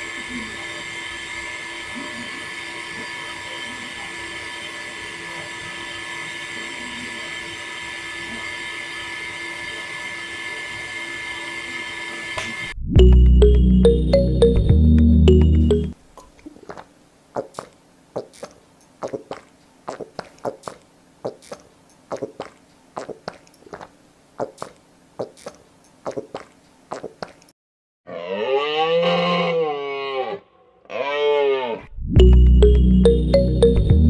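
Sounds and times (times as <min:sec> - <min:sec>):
cow mooing: 0:28.1 - 0:31.9.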